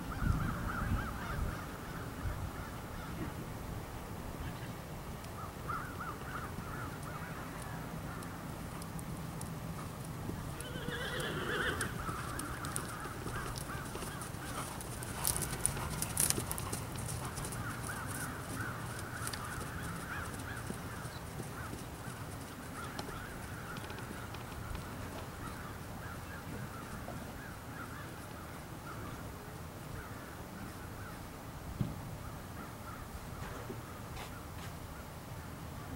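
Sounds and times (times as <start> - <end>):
horse hoofbeats on sand: 11.8 - 24.5.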